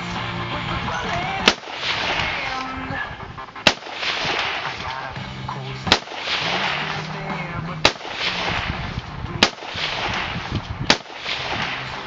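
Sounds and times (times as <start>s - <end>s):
rifle shots with echo: 1.4s - 2.9s, 3.6s - 5.2s, 5.8s - 12.0s.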